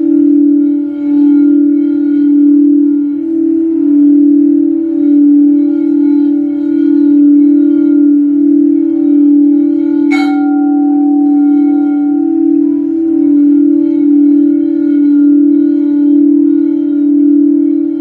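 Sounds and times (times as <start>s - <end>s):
singing bowl hum: 0.0s - 18.0s
singing bowl strike ringing: 9.1s - 17.5s.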